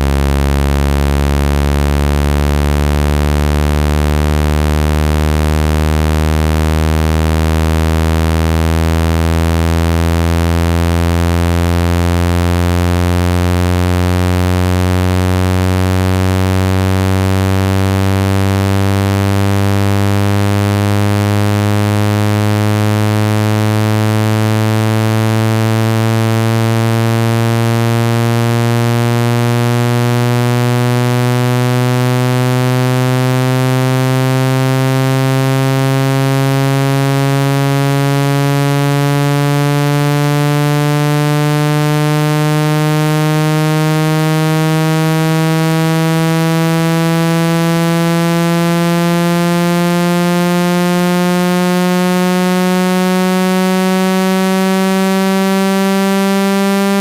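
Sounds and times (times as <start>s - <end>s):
buzzy synthesized tone rising: 0.0s - 57.0s.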